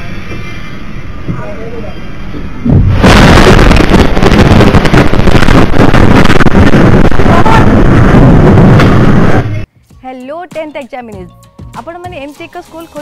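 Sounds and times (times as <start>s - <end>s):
rushing noise with crackles: 2.2s - 9.7s
loud explosion blast: 2.6s - 9.6s.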